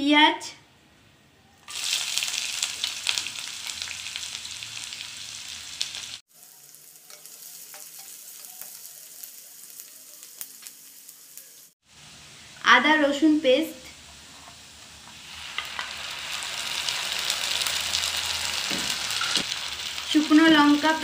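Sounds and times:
oil crackling: 0:01.6 - 0:11.8, 0:14.8 - 0:21.0
onion sizzling in hot oil: 0:01.6 - 0:21.0.

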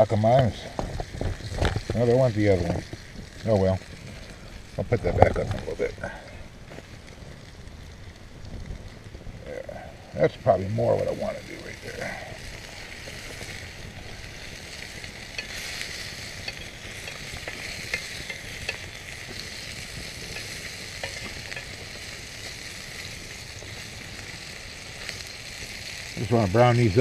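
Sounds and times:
sausage sizzling in a skillet: 0:00.0 - 0:27.0.

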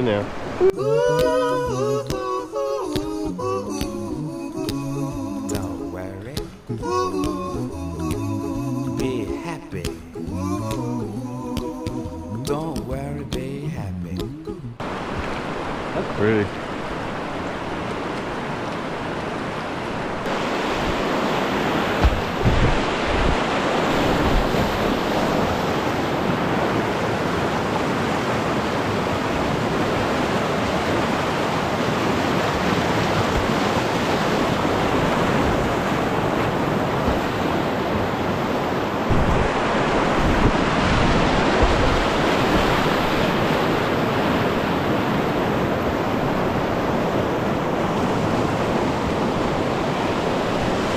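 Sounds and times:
rushing river whitewater: 0:00.0 - 0:10.6, 0:14.8 - 0:50.9
wind buffeting microphone: 0:20.2 - 0:27.0, 0:31.7 - 0:50.9.

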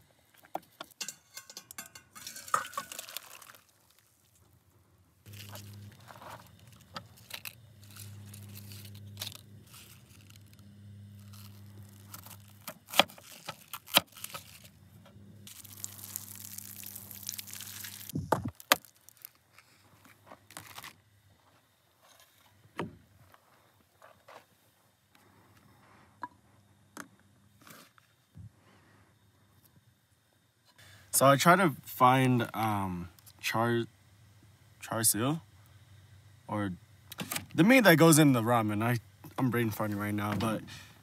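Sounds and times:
low steady hum: 0:00.0 - 0:41.0
handling and scraping: 0:00.3 - 0:04.5, 0:05.3 - 0:22.6.

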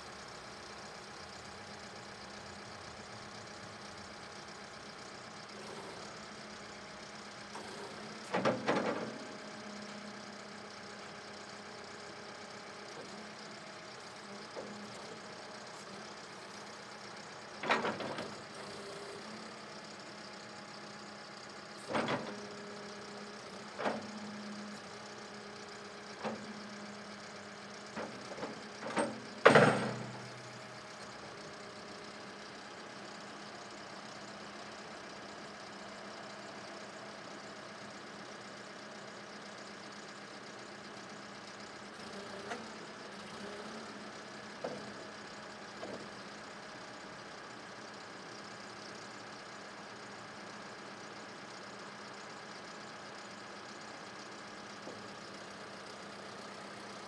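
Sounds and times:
diesel engine idling: 0:00.0 - 0:57.0
loader bucket clunks: 0:07.6 - 0:09.5, 0:17.6 - 0:18.8, 0:28.0 - 0:30.8.

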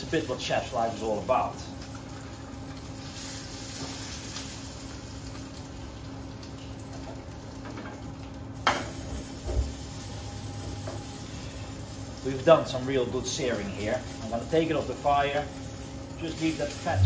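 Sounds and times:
steak sizzling in frying pan: 0:00.9 - 0:17.0
steady hum: 0:09.0 - 0:14.2, 0:15.0 - 0:17.0.

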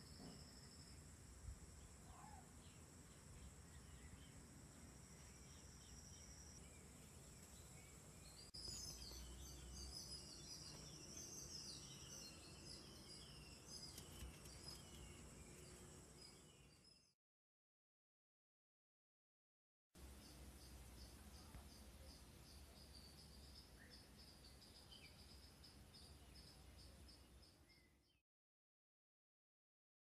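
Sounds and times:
birds chirping: 0:01.7 - 0:17.1.

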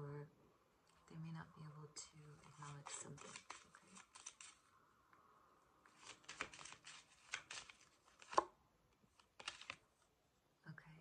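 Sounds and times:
cards being shuffled: 0:02.4 - 0:04.6, 0:05.9 - 0:08.5, 0:09.1 - 0:09.8.

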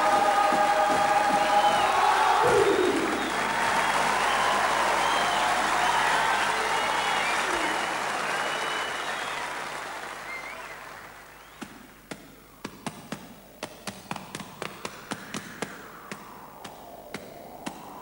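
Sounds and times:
applause: 0:00.0 - 0:12.0.

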